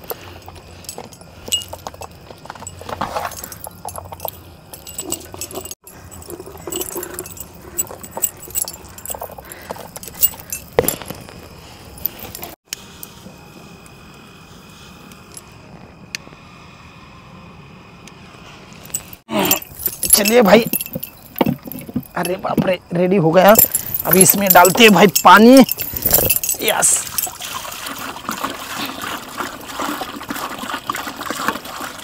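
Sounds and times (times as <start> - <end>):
metal jewellery clinking on pot: 0.4 - 11.1, 18.9 - 22.4, 23.5 - 27.4.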